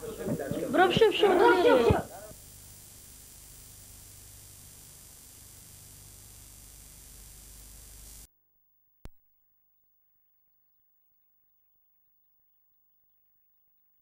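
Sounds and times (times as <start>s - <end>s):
tape hiss and hum: 0.0s - 8.3s.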